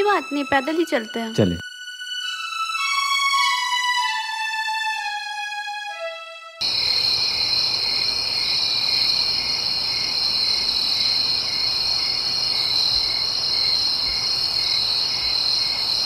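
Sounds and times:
crickets trilling: 0:06.6 - 0:16.0.

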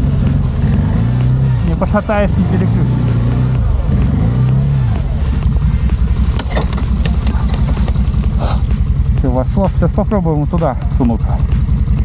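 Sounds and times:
quad bike engine idling: 0:00.0 - 0:12.0
sharp clicks: 0:05.8 - 0:08.3.

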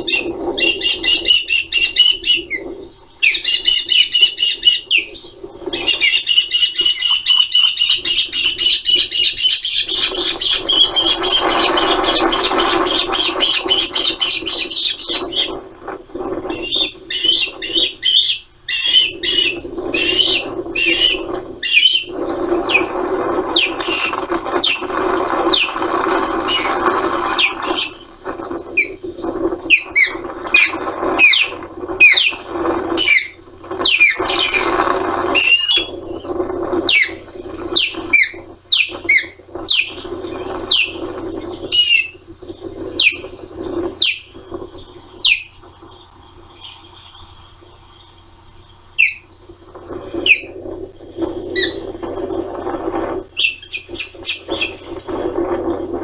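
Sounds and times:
osprey whistled calls: 0:00.0 - 0:52.4, 0:53.2 - 0:55.1
rough rushing noise: 0:00.0 - 0:56.0.

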